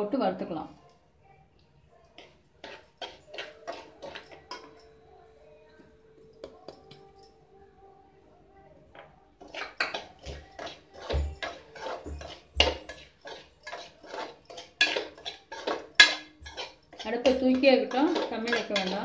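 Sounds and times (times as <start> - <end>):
spoon scraping metal pan: 2.2 - 4.9, 9.4 - 19.0
bowl and spoon knocking pan: 9.4 - 19.0.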